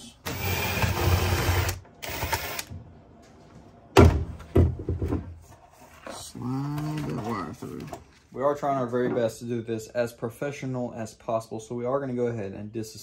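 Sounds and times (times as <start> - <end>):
loud knocks: 4.0 - 5.3.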